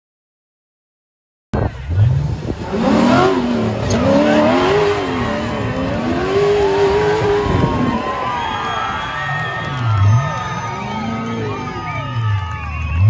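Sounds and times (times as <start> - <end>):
buggy engine revving hard: 1.6 - 9.0, 9.6 - 12.2.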